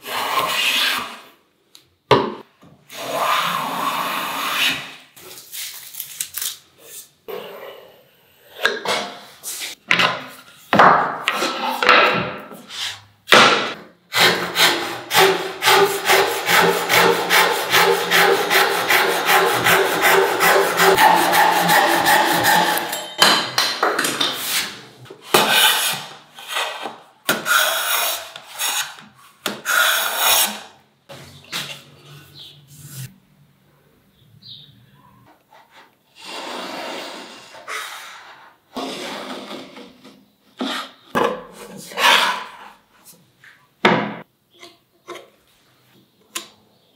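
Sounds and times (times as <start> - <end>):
handsaw cutting board: 14.1 - 23.0
hand plane strokes on wood: 14.2 - 23.0.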